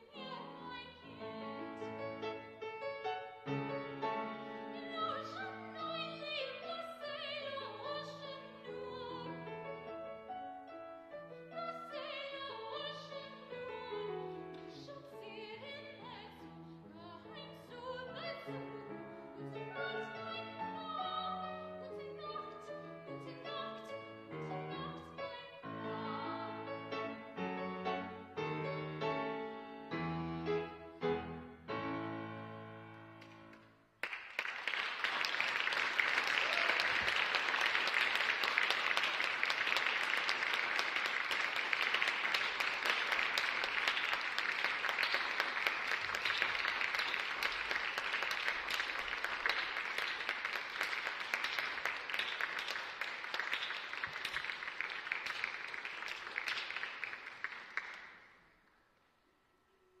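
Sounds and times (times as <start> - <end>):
audience applauding: 33.2 - 58.3.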